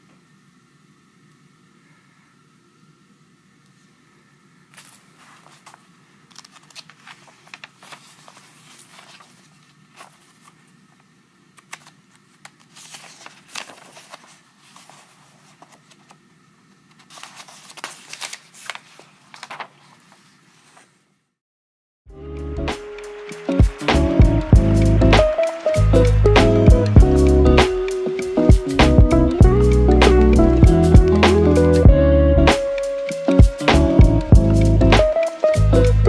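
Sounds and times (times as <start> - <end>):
paper crinkling and rustling: 4.7 - 21.0
steady low hum: 23.8 - 32.7.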